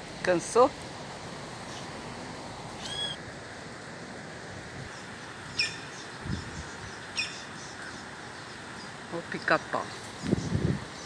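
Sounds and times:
woodpecker calling: 0:02.8 - 0:03.2, 0:04.9 - 0:09.0
wind noise: 0:04.6 - 0:07.2, 0:10.1 - 0:11.0.

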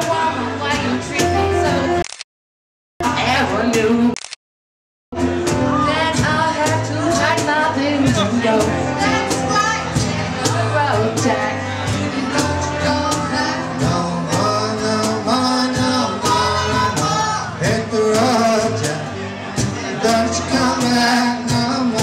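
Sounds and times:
keyboard: 0:05.1 - 0:22.0
steady drum beat: 0:05.1 - 0:22.0
people singing: 0:05.2 - 0:22.0.

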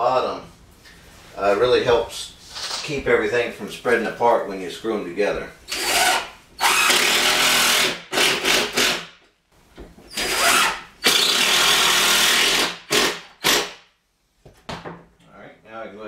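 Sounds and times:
impact driver driving screws: 0:05.7 - 0:09.1, 0:10.1 - 0:13.8.

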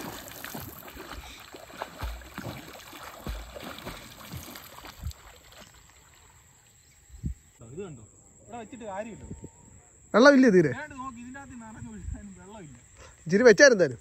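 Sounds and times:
swimming splashes: 0:00.0 - 0:06.6.

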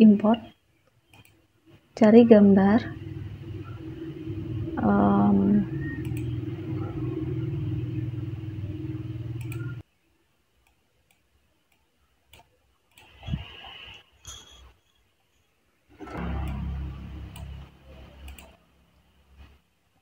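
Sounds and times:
steady low hum: 0:00.0 - 0:09.9, 0:15.9 - 0:20.0
computer mouse clicks: 0:00.8 - 0:01.4, 0:05.8 - 0:06.4, 0:09.3 - 0:09.8, 0:10.6 - 0:14.0, 0:17.3 - 0:17.6, 0:18.2 - 0:18.6.

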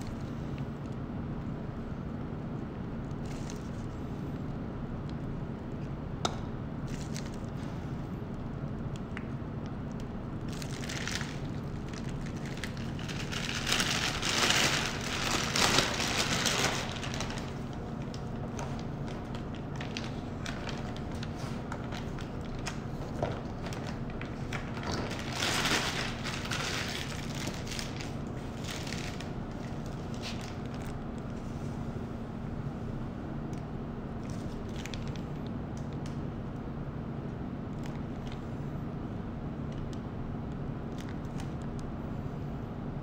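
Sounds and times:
plastic piping bag crinkling: 0:03.1 - 0:03.9, 0:06.8 - 0:07.7, 0:09.8 - 0:31.4, 0:34.2 - 0:36.1.

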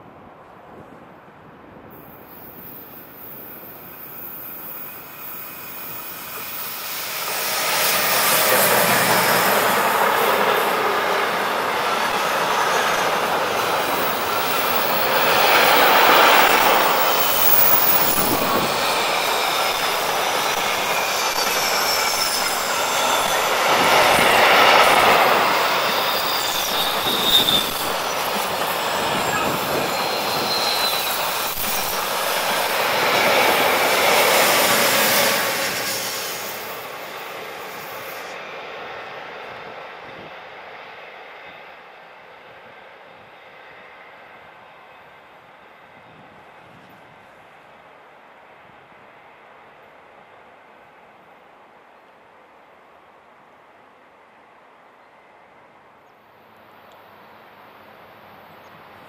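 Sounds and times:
freight train rolling past: 0:00.0 - 0:59.0
wheel flanges squealing: 0:11.8 - 0:36.7.

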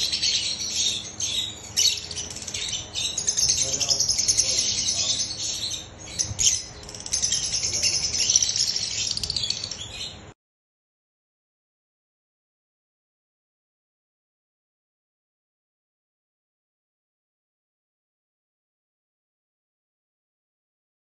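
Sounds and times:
lovebirds chirping and squawking: 0:00.0 - 0:10.3.

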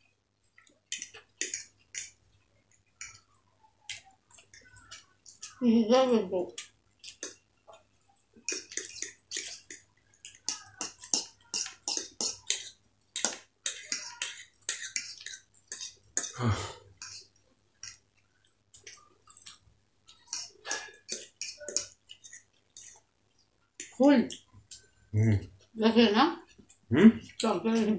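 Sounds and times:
slurping and chewing: 0:06.6 - 0:25.4
deep throat sound: 0:16.4 - 0:16.8.

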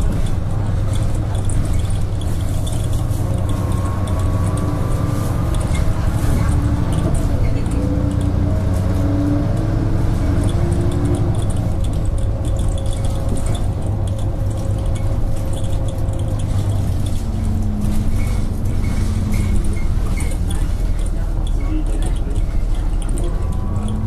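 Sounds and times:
bus diesel engine drone: 0:00.0 - 0:24.0.

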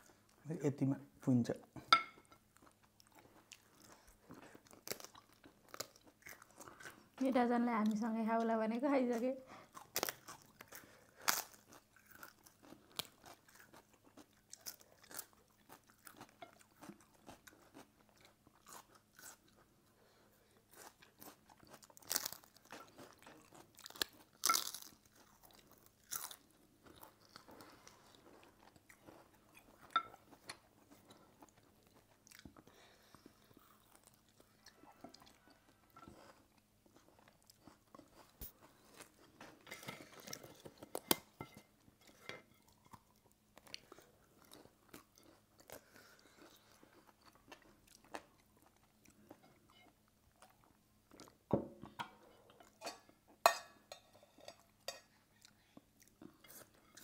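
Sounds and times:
crunchy food chewing: 0:02.6 - 0:07.2, 0:09.6 - 0:41.3, 0:42.1 - 0:51.4.

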